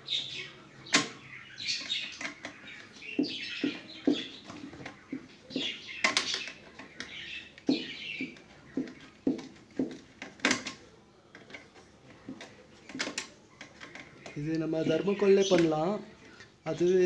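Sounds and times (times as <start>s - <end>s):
high chirping squeaks: 1.2s - 9.4s
hollow knocks and clicks: 1.8s - 14.4s.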